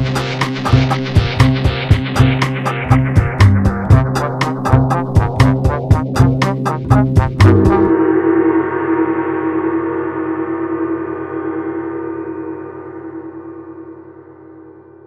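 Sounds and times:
brass band chord ringing: 0:07.3 - 0:08.0.

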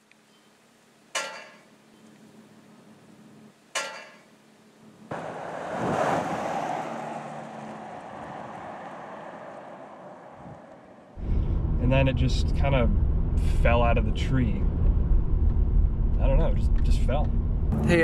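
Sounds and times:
rushing outdoor noise: 0:05.0 - 0:13.2.

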